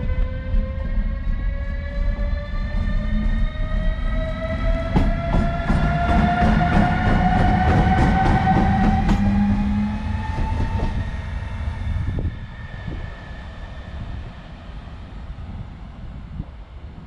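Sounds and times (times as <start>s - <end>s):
heavy locomotive rumble: 0.0s - 17.0s
train wheels clicking over rail joints: 4.9s - 11.0s.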